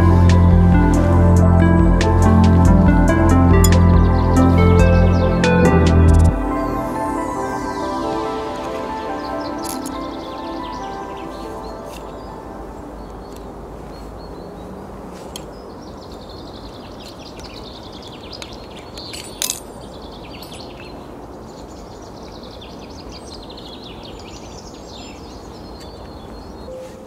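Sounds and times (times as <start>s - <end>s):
songbird singing: 0.0s - 27.0s.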